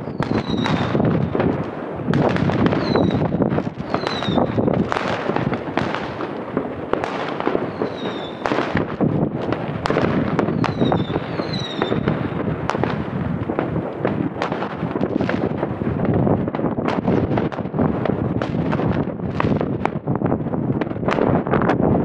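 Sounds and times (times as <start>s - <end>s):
falling firework whistles: 0.0s - 1.5s, 2.1s - 6.3s, 7.0s - 8.9s, 9.8s - 13.0s
fireworks bangs and crackling: 0.0s - 22.0s.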